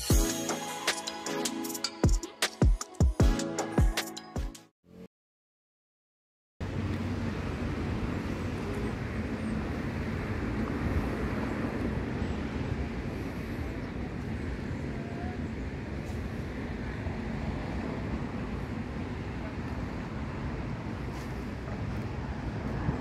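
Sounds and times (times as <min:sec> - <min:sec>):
low rumbling background noise: 0:06.6 - 0:23.0.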